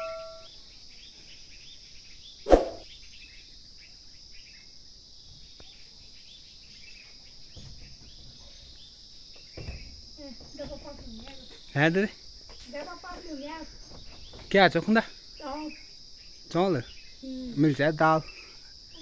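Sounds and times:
faint chirps: 0.0 - 19.0
insects droning: 0.0 - 19.0
sharp thump: 2.5 - 2.8.

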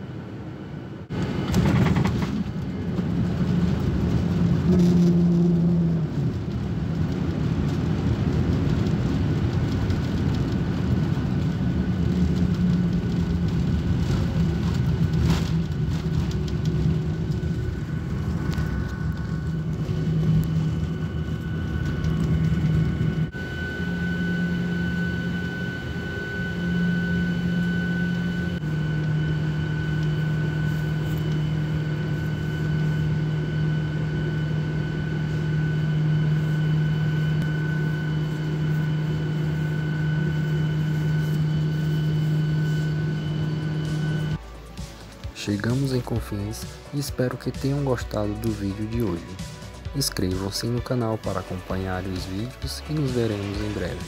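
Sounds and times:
jet engine hum and whine: 0.0 - 54.0.

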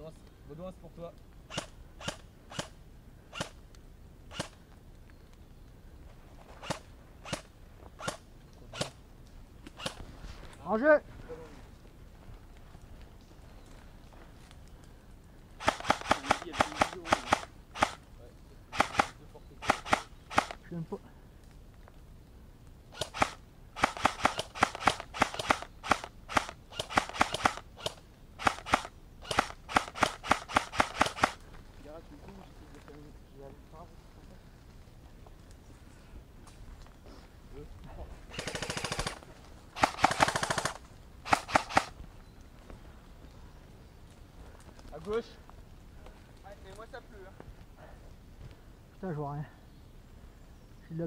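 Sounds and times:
airsoft gun shots: 1.5 - 3.6, 15.6 - 18.0, 18.7 - 20.6, 22.9 - 31.4, 39.8 - 42.0.

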